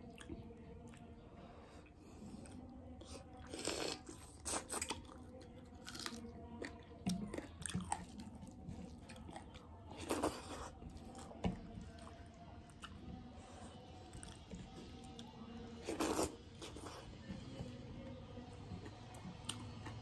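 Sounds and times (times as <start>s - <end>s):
chewing and biting: 3.4s - 13.1s, 14.1s - 17.1s.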